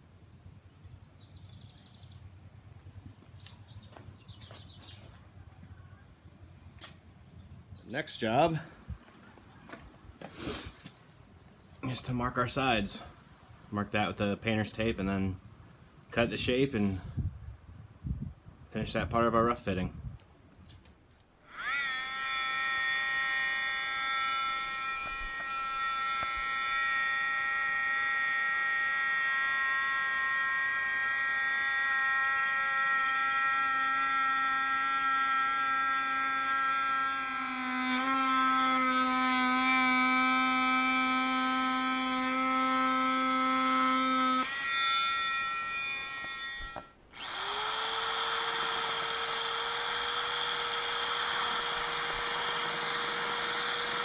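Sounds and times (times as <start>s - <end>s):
belt sander running: 21.4s - 54.0s
oscillating multi-tool whine: 21.4s - 54.0s.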